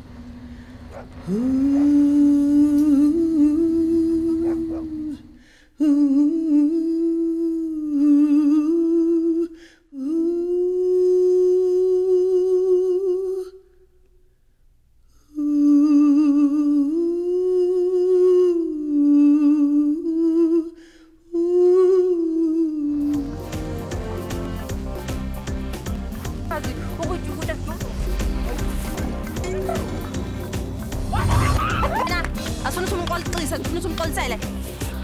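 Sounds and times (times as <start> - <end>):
woman humming: 1.2 - 13.6, 15.3 - 24.5, 26.4 - 32.6
music with a beat: 23.2 - 35.0.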